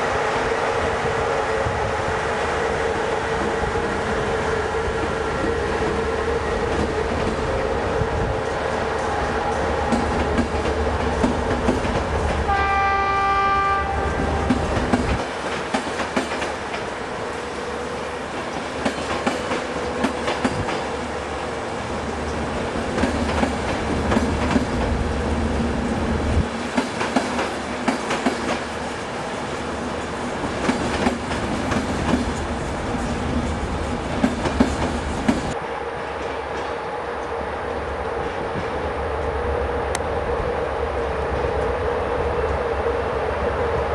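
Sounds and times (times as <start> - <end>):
train wheels clicking over rail joints: 3.0 - 12.5, 14.0 - 35.6
train horn: 12.4 - 14.7.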